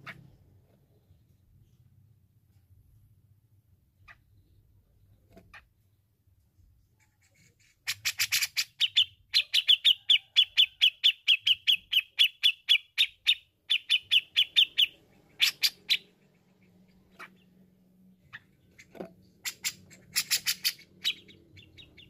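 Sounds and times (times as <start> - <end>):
bird calling sharp repeated notes: 7.9 - 16.2, 18.3 - 22.0.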